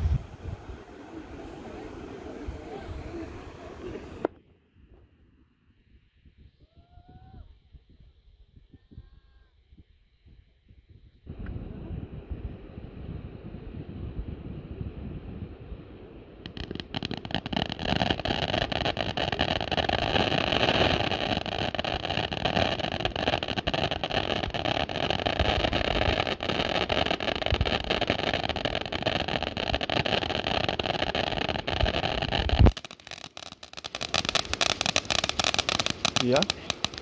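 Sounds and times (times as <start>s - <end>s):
firework fountains hissing and crackling: 0.0s - 4.4s, 16.4s - 37.0s.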